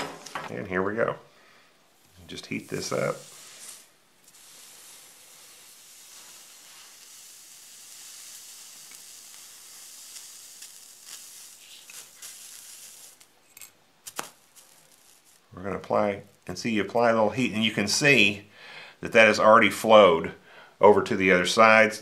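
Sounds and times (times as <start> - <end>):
flux sizzling under soldering iron: 2.3 - 15.6.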